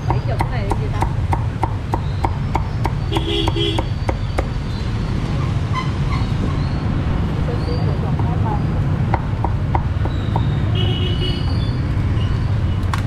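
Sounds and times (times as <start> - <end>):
cleaver chopping on wooden block: 0.0 - 4.6, 9.1 - 10.6.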